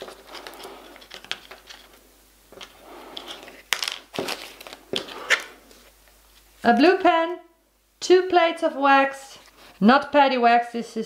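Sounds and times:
plastic packaging crinkling: 0.0s - 6.6s.

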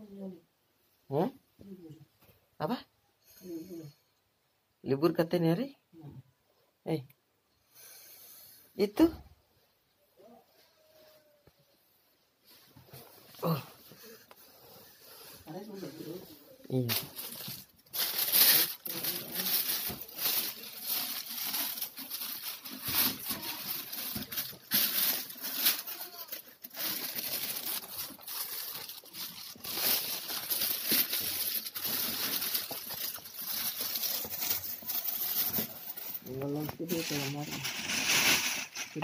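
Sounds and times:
plastic bag rustling and crinkling: 12.4s - 39.0s.

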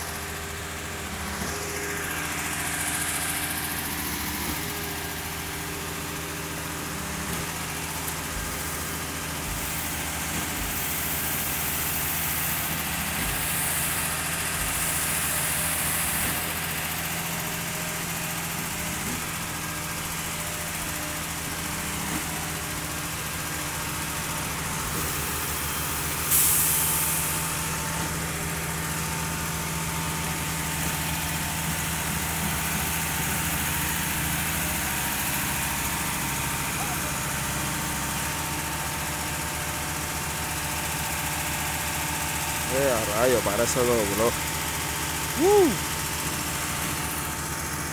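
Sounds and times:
diesel engine running: 0.0s - 47.9s.

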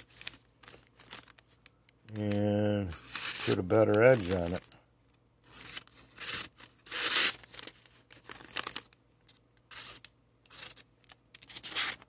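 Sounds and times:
knife ripping through paper: 3.0s - 4.6s, 5.5s - 7.5s, 9.7s - 10.8s, 11.4s - 12.0s.

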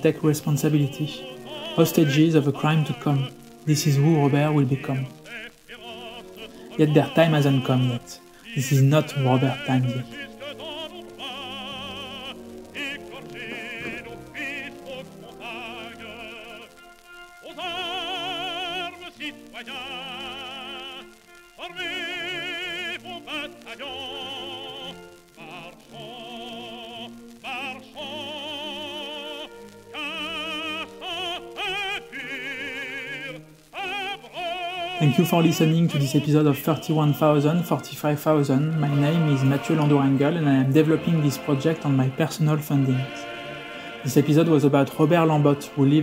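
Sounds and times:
operatic voice singing: 0.0s - 46.0s.

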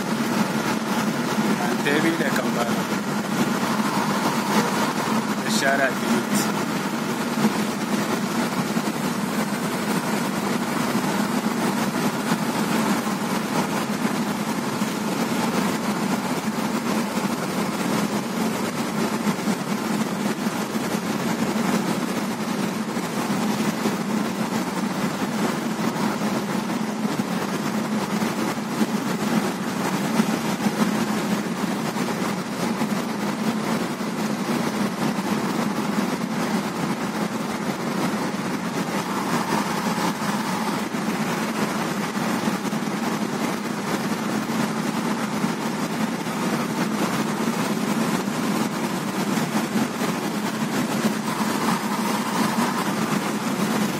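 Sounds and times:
car engine hum: 0.0s - 53.9s.

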